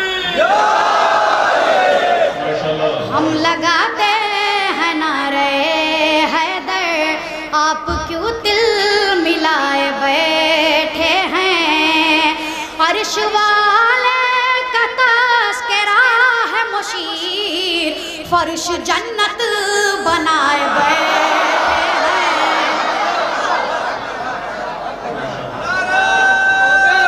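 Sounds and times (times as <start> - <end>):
boy singing in high voice: 3.2 - 22.6.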